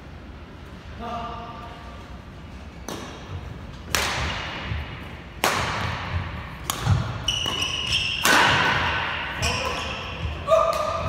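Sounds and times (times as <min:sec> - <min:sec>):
shuttlecock struck by rackets: 0:02.8 - 0:04.8, 0:05.4 - 0:09.8
shoe squeaks: 0:07.1 - 0:08.3, 0:09.4 - 0:10.6.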